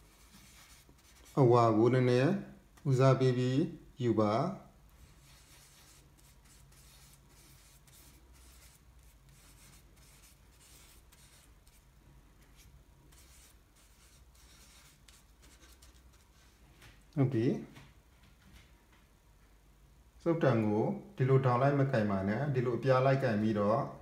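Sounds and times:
paintbrush scratching: 0.0s - 1.5s, 5.0s - 16.7s.

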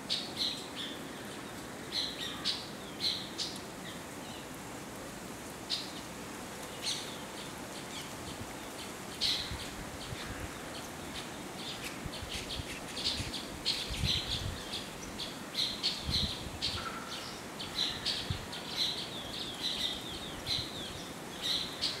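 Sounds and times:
faint background hiss: 0.0s - 22.0s
small birds chirping: 5.7s - 22.0s.

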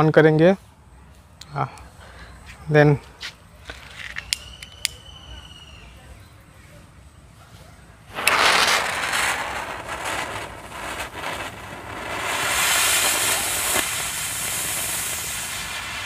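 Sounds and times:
crackles: 3.1s - 6.0s, 7.5s - 16.0s
rocket motor whoosh and hiss: 8.1s - 16.0s.

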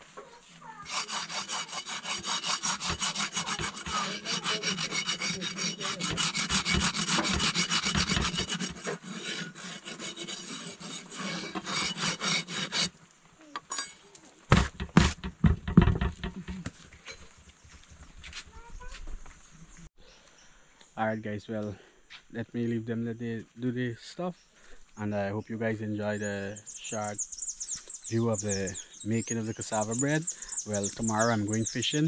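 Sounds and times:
fast rhythmic scraping: 0.8s - 12.9s.

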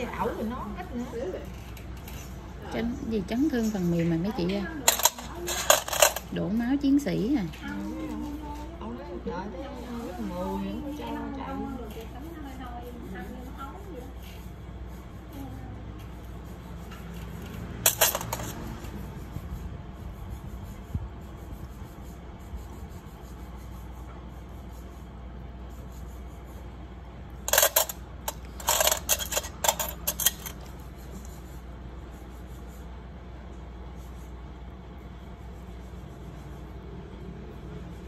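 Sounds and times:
metal tools clinking: 4.8s - 6.3s, 17.8s - 18.6s, 27.5s - 30.7s.

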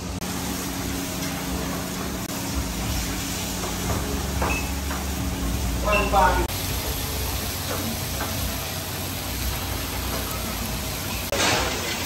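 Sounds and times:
kitchen equipment humming: 0.0s - 12.0s.

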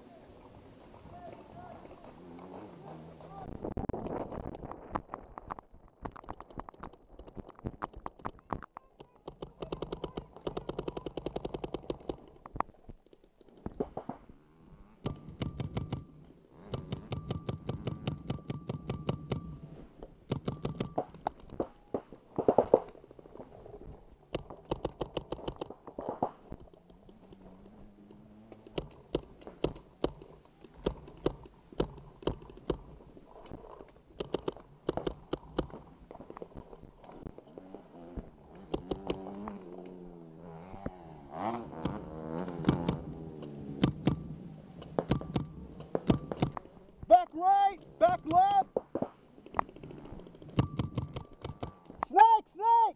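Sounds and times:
paintball markers firing: 5.1s - 14.2s, 15.0s - 19.5s, 20.3s - 23.5s, 24.2s - 33.0s, 34.2s - 37.3s, 38.2s - 40.0s, 41.7s - 47.1s, 48.0s - 52.0s.

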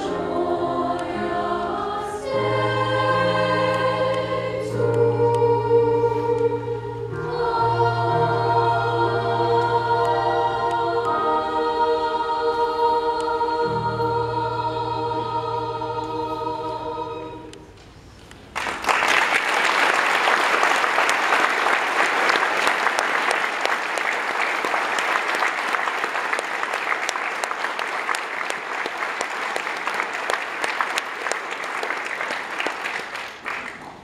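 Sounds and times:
choir singing held chord: 0.0s - 17.7s
audience applause: 18.5s - 34.0s.

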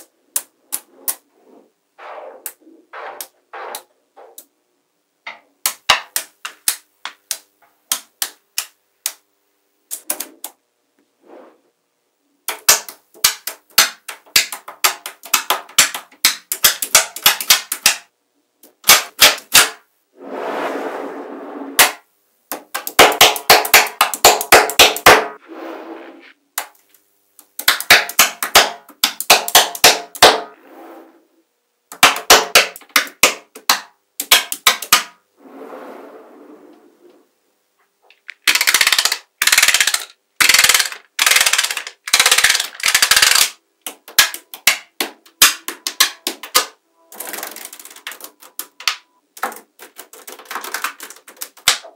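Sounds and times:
magnetic balls clicking together: 5.6s - 9.2s, 12.4s - 19.8s, 21.8s - 25.3s, 26.6s - 30.4s, 31.9s - 35.2s, 38.1s - 51.9s.

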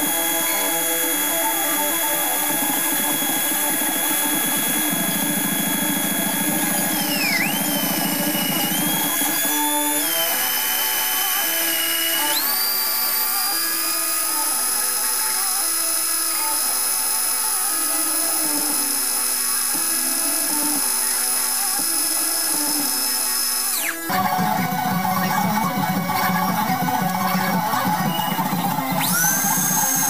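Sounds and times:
electric drill motor whining: 0.0s - 30.0s
music with plucked melody: 24.1s - 29.9s.

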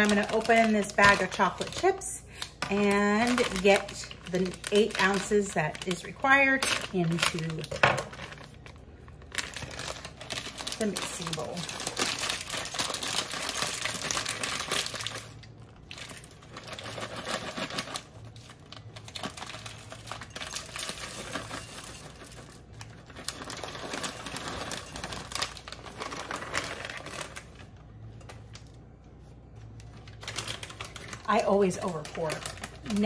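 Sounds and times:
bag crinkling: 0.0s - 33.0s
chips pouring into cup: 9.4s - 27.5s.

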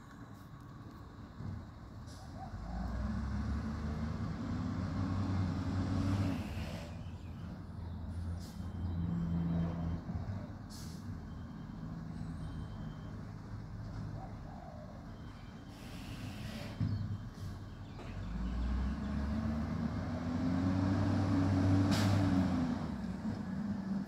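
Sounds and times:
garbage truck diesel engine: 0.0s - 24.0s
air brakes hissing: 6.1s - 7.2s, 8.4s - 8.8s, 10.7s - 11.2s, 15.6s - 17.7s, 21.9s - 22.3s.

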